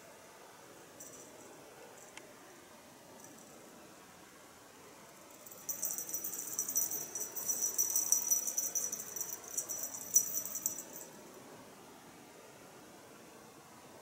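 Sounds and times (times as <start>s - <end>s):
cat collar jingling: 5.4s - 11.2s.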